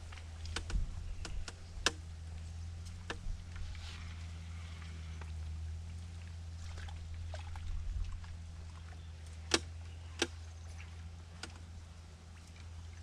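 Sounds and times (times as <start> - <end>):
faint clicks and knocks: 0.0 - 3.8, 9.2 - 11.7
steady low hum: 0.0 - 13.0.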